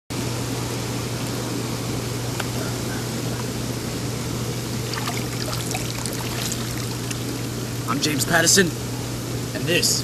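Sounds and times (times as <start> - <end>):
low pump hum: 0.2 - 9.5
water churning and bubbling: 4.6 - 7.9
small water splashes: 4.8 - 7.7.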